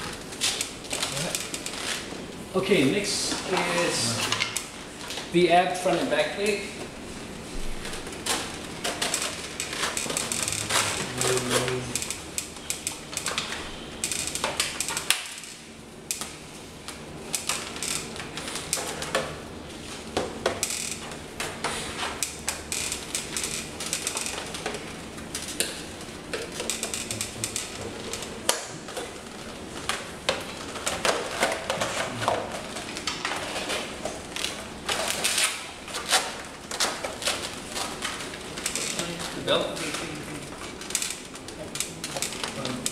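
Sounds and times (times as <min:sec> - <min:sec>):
straps and fittings rattling: 0:26.6 - 0:29.4.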